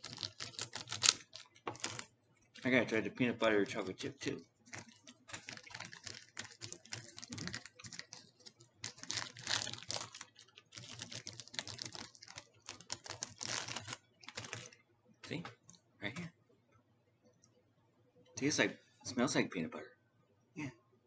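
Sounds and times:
plastic wrapper crinkling: 0:00.0 - 0:14.8.

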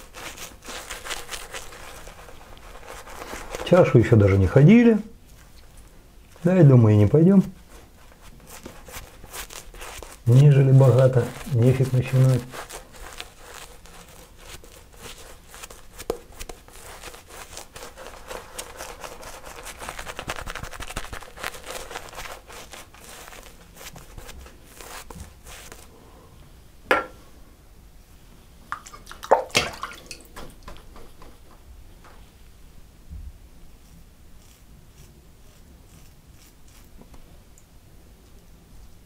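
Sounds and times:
shaving brush swirling lather: 0:06.4 - 0:25.9, 0:33.8 - 0:37.0.

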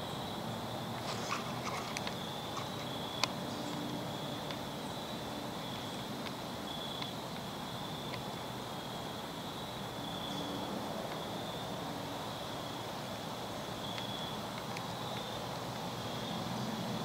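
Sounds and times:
faint sharp ticks: 0:01.0 - 0:03.8, 0:06.2 - 0:08.3, 0:13.9 - 0:15.9.

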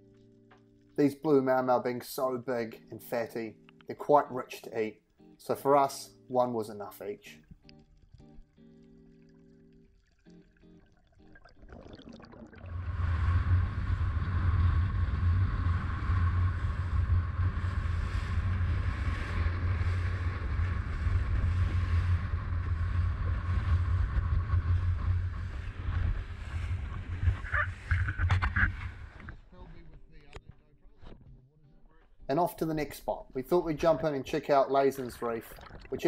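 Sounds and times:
wind and water rushing: 0:12.6 - 0:28.1.

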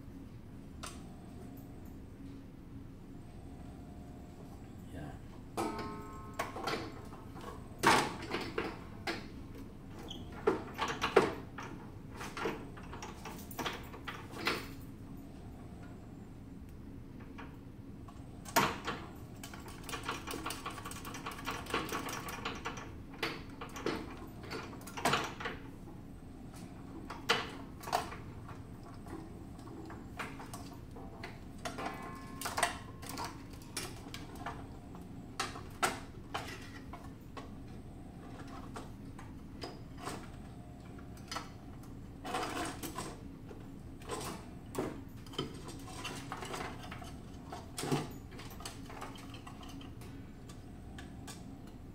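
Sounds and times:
steady low hum: 0:00.0 - 0:51.9.

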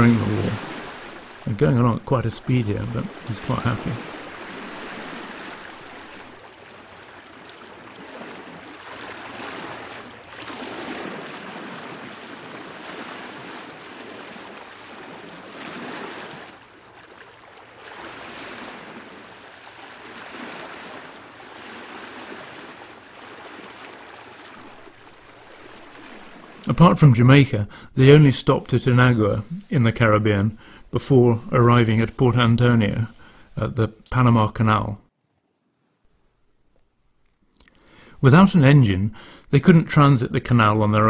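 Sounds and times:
sea water rushing and splashing: 0:00.0 - 0:27.9.

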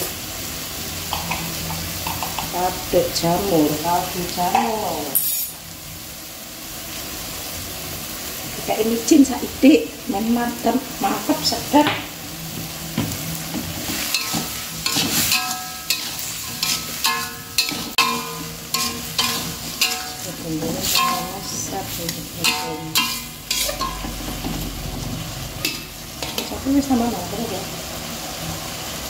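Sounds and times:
food sizzling in a wok: 0:00.0 - 0:29.0
spatula clanking against pan: 0:01.1 - 0:02.5, 0:13.8 - 0:24.5
metal spatula scraping wok: 0:05.1 - 0:05.6, 0:13.3 - 0:27.0.

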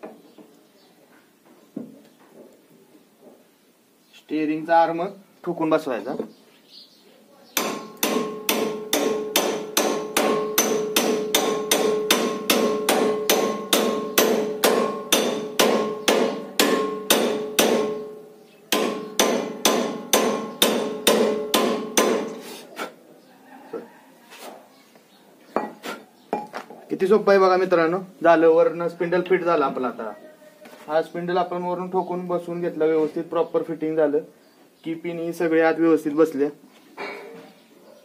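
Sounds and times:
hammer striking metal: 0:07.6 - 0:22.4.

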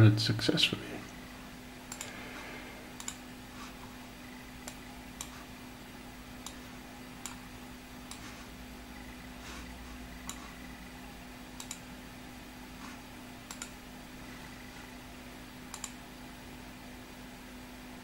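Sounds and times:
faint steady hum: 0:00.0 - 0:18.0
computer mouse clicking: 0:01.9 - 0:02.2, 0:03.0 - 0:03.2, 0:04.3 - 0:05.4, 0:06.4 - 0:06.6, 0:07.2 - 0:07.4, 0:08.0 - 0:08.3, 0:10.2 - 0:10.6, 0:11.6 - 0:11.9, 0:13.4 - 0:13.8, 0:15.7 - 0:16.0.

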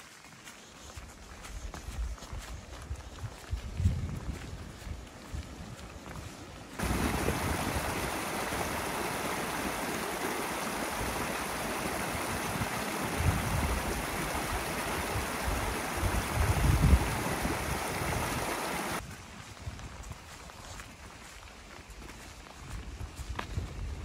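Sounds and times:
wind buffeting microphone: 0:01.6 - 0:20.3, 0:22.6 - 0:24.0
stream rushing over stones: 0:06.7 - 0:19.0.

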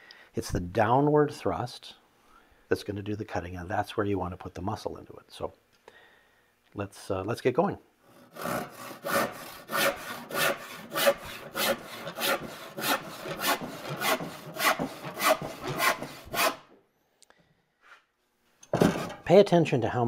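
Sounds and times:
hand saw cutting wood: 0:08.1 - 0:16.7.

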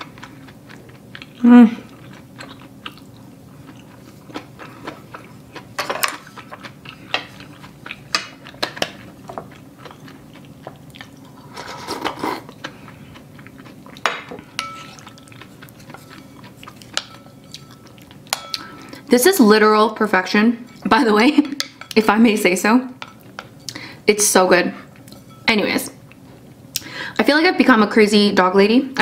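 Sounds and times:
chewing food: 0:00.0 - 0:19.0
slurping broth: 0:11.3 - 0:12.6.

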